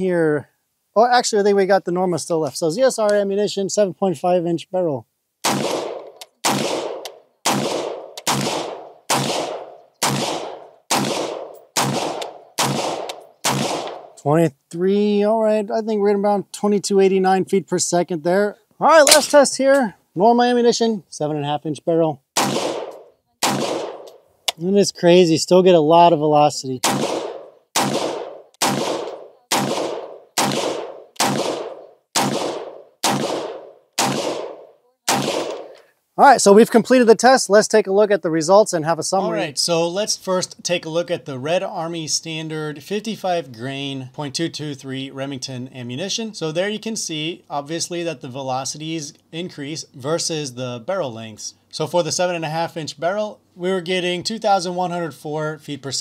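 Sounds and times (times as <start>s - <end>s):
gunshots with short echo: 5.4s - 14.2s, 22.4s - 24.1s, 26.8s - 35.7s.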